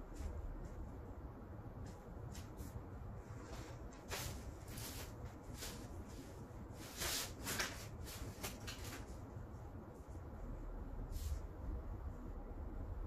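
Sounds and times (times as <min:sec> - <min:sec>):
cardboard scraping on a mat: 0:03.3 - 0:09.1.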